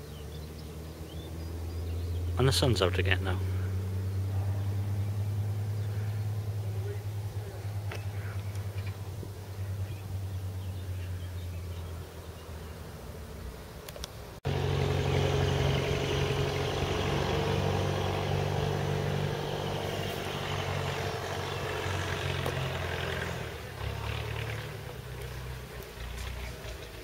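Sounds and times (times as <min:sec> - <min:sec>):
engine running: 0:00.0 - 0:27.0.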